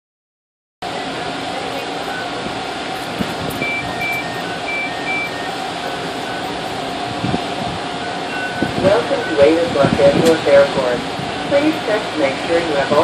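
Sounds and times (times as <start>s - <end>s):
vehicle and air conditioning hum: 0.8s - 13.0s
electronic chime beeps: 3.5s - 6.9s, 8.0s - 9.4s.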